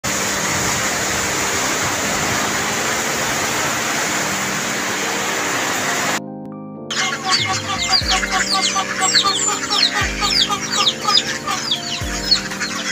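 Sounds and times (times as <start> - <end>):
heavy rain lashing trees: 0.0 - 6.2, 6.9 - 12.9
strong wind: 0.0 - 6.2.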